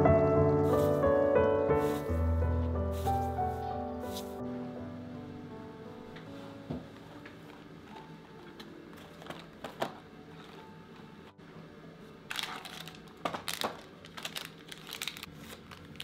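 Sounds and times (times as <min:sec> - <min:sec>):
plastic wrapper crinkling: 0:12.3 - 0:16.0.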